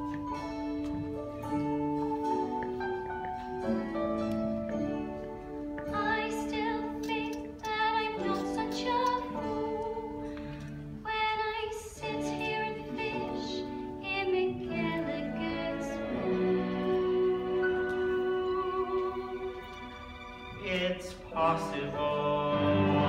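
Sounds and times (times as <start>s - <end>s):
live band playing held notes: 0.0s - 11.0s.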